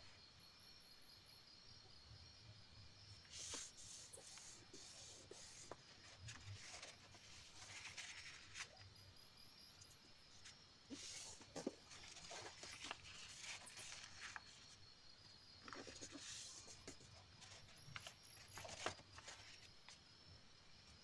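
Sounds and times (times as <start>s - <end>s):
paper rustling and sliding: 3.2s - 8.8s, 10.4s - 14.8s, 15.6s - 19.7s
fingers brushing paper: 3.3s - 8.7s.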